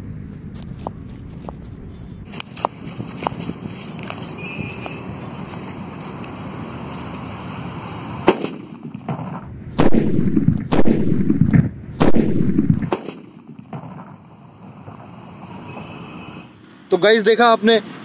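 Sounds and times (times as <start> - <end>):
firecracker sharp crack: 8.2 - 14.3
loud booms with rumble: 9.4 - 12.9.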